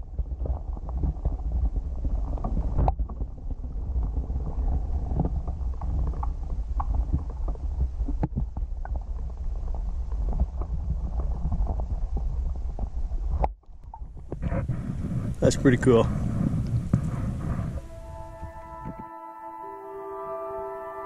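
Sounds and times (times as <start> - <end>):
faint crackles: 0.0 - 18.9
muffled underwater rumble: 0.0 - 19.3.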